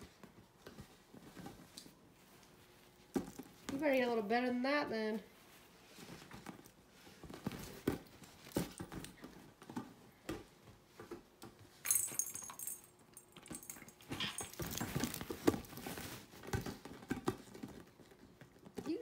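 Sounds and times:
inflatable ball thumps and rustling: 5.4s - 11.8s, 14.0s - 19.0s.

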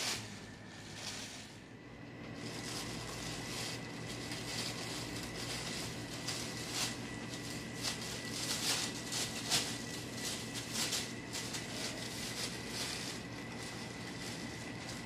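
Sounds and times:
faint steady hum: 0.0s - 15.0s
plastic bag rustling: 0.0s - 15.0s.

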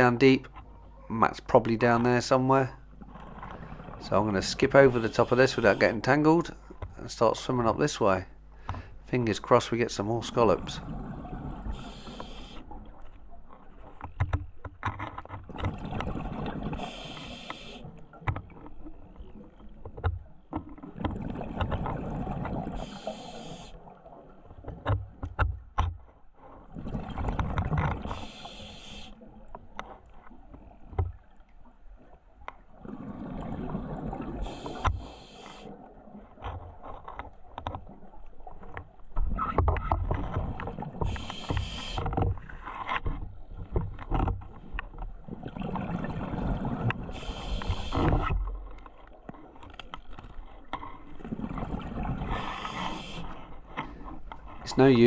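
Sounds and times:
regulator hiss: 28.1s - 29.1s, 47.2s - 48.1s
exhaled bubbles rushing: 32.7s - 34.8s, 45.3s - 48.0s.

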